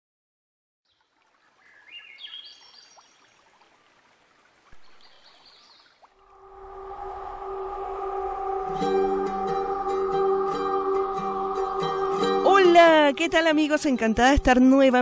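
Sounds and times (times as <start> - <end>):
running water: 0.9 - 15.0
high rising chirps: 6.2 - 13.8
ambient music chord: 6.2 - 14.6.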